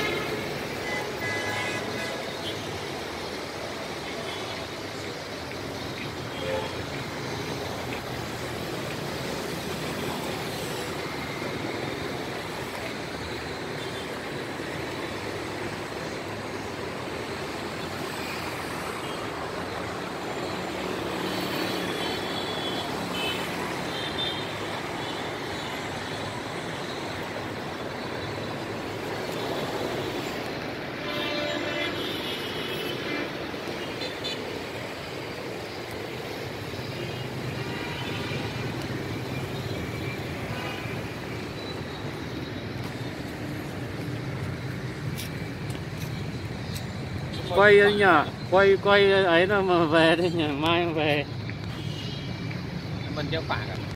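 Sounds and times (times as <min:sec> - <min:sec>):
car horn: 0:00.0 - 0:02.7, 0:21.7 - 0:25.8, 0:31.0 - 0:34.4, 0:51.7 - 0:52.4
road traffic hum: 0:00.0 - 0:53.9.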